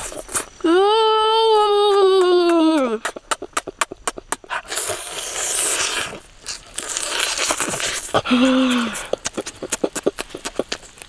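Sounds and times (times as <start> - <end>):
person chewing and crunching: 0.0 - 0.7, 1.8 - 11.0
person humming mm: 0.2 - 6.0, 7.7 - 10.0
lip-smacking clicks: 2.0 - 4.9, 7.6 - 11.0.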